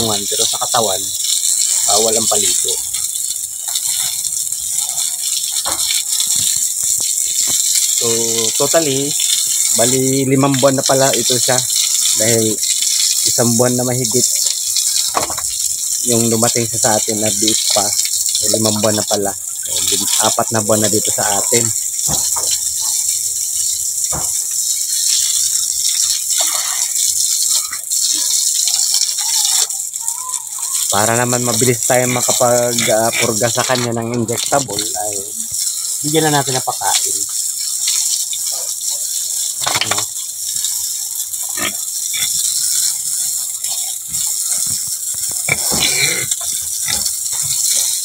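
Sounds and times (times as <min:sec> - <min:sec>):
hose water spraying on concrete: 0:00.0 - 0:48.0
pig grunting: 0:41.5 - 0:42.4.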